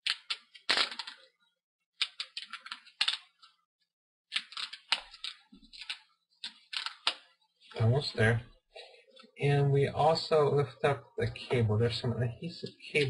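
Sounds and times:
adhesive tape peeling crackles: 0.0 - 1.2, 4.4 - 7.2.

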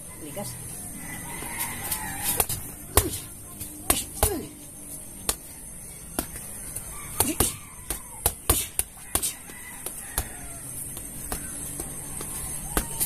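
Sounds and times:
punches thudding on punching bag: 2.4 - 4.5, 7.1 - 13.0.

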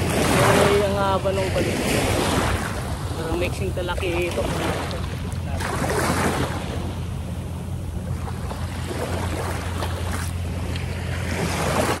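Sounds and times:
small waves washing: 0.0 - 12.0.

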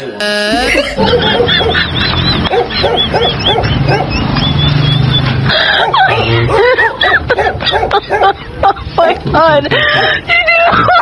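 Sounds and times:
dog barking: 1.0 - 1.9, 2.5 - 4.2, 5.7 - 8.4.

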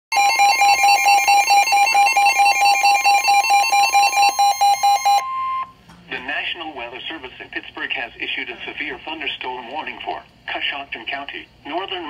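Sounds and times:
long steady alarm tone: 0.1 - 5.8
rapidly pulsing alarm beep: 0.1 - 5.8.

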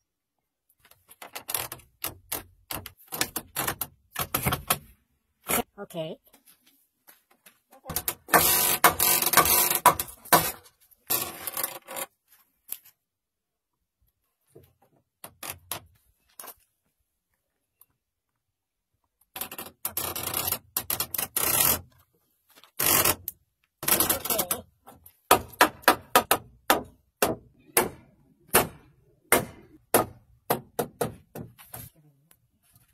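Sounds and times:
hand tool scraping wood: 7.9 - 12.1, 19.4 - 22.0, 22.6 - 26.4.

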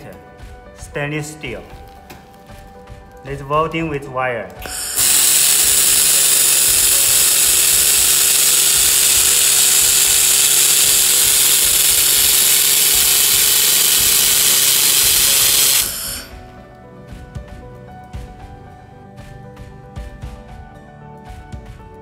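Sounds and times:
laser welder hissing: 4.6 - 16.5.

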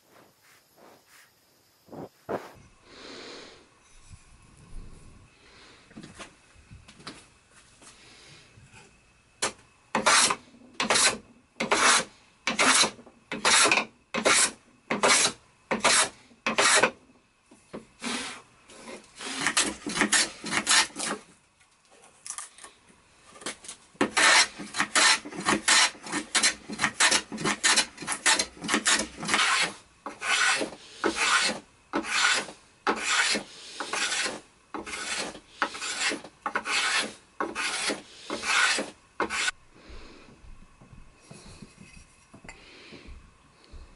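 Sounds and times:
hand plane strokes on wood: 10.0 - 16.9, 18.0 - 21.2, 23.4 - 39.6.

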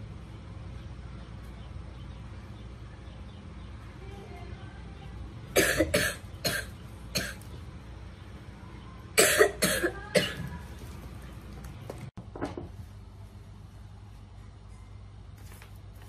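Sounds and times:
woman coughing: 5.6 - 7.4, 9.2 - 10.5.

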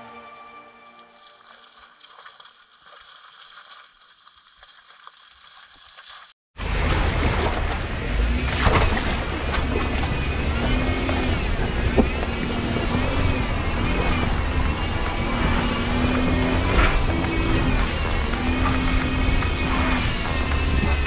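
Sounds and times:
engine and drivetrain rumble: 6.6 - 21.0
wind buffeting microphone: 6.7 - 21.0.

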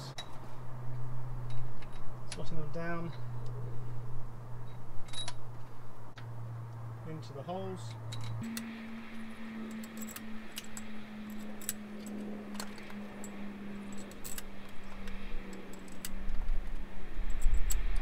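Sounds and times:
steady low hum: 0.0 - 18.0
metal bolts clinking: 4.7 - 5.5, 9.6 - 16.2.

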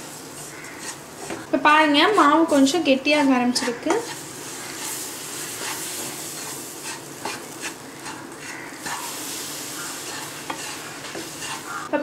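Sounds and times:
steady sizzle: 0.0 - 12.0
spatula scraping a pan: 0.2 - 11.9.

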